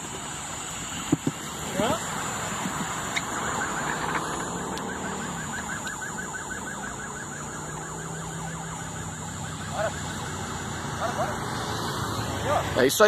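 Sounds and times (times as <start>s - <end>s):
traffic noise: 0.0s - 13.0s
electronic siren whooping: 1.7s - 12.8s.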